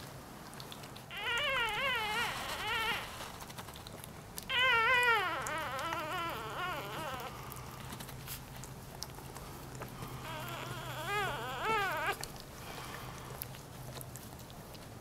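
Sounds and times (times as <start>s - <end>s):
puppy crying: 1.1s - 7.6s, 10.1s - 12.4s.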